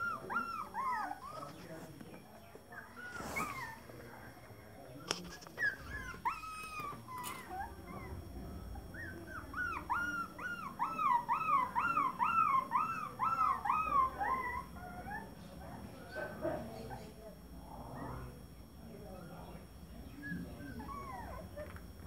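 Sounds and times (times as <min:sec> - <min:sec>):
puppy whining: 0:00.0 - 0:01.8, 0:02.7 - 0:03.9, 0:05.5 - 0:17.2, 0:20.1 - 0:21.9.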